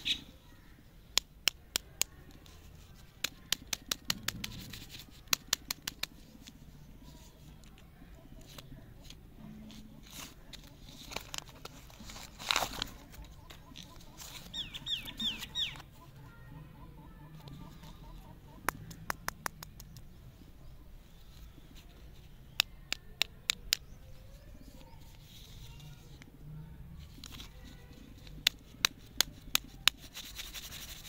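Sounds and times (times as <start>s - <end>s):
bird chirping: 0.0s - 1.1s, 13.1s - 26.1s
sharp clicks: 3.2s - 6.6s, 18.5s - 20.1s
plastic wrappers crinkling: 10.0s - 14.5s.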